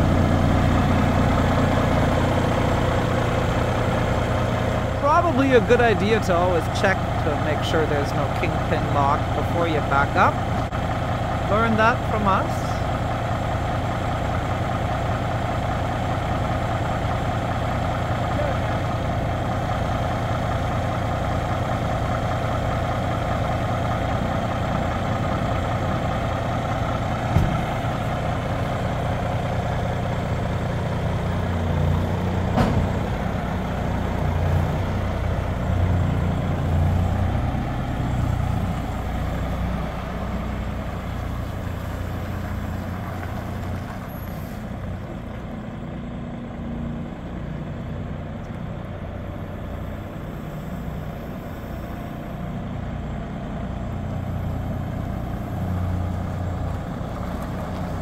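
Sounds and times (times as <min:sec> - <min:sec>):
diesel truck engine: 0:00.0 - 0:58.0.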